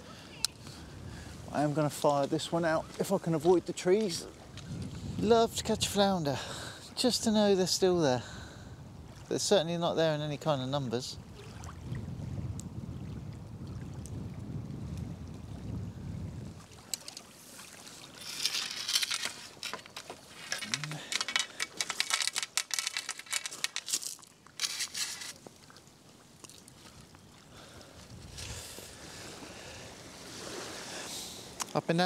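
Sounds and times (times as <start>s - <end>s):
wind rumble on microphone: 0.5s - 2.0s, 4.0s - 6.2s, 7.7s - 9.3s, 11.1s - 16.9s, 26.9s - 30.6s.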